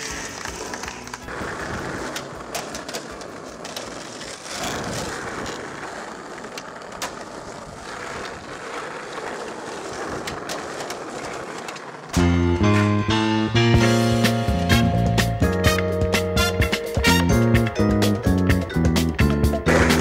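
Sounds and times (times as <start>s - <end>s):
skateboard clicks and knocks: 0.0s - 14.1s, 14.8s - 20.0s
skateboard wheels rolling on asphalt: 0.0s - 20.0s.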